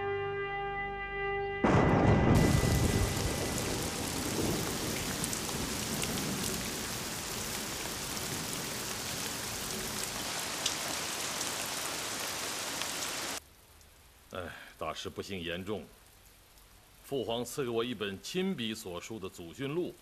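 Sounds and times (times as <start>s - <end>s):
thunder peal: 1.6s - 8.8s
heavy rain pouring off eaves: 2.4s - 20.0s.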